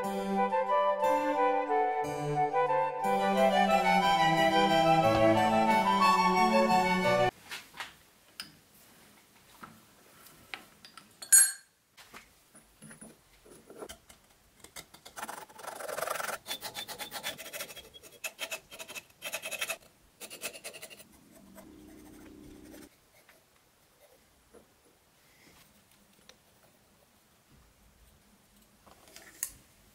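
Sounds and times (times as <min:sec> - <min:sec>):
sharp metallic clink: 0:11.2 - 0:11.7
low hum: 0:21.0 - 0:22.9.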